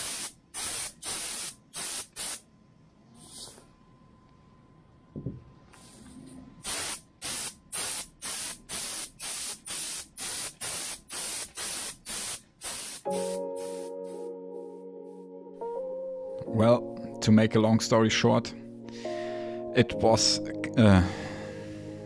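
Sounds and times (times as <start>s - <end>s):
air spray gun hissing bursts: 0.0s - 2.4s, 6.6s - 14.2s.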